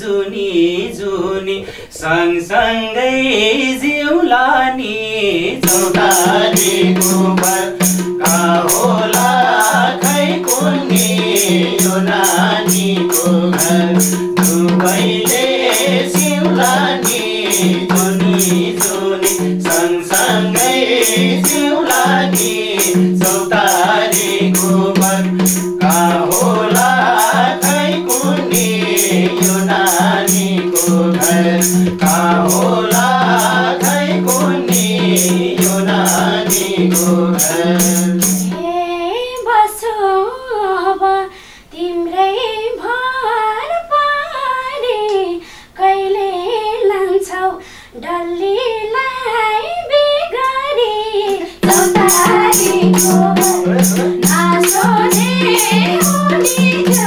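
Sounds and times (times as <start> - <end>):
person singing folk song: 0.0 - 57.0
hand drum beat: 5.6 - 38.7, 51.6 - 57.0.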